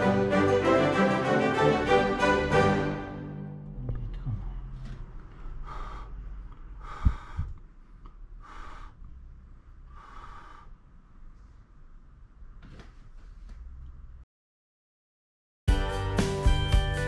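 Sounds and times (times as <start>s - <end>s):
slow regular breaths: 4.8s - 12.0s.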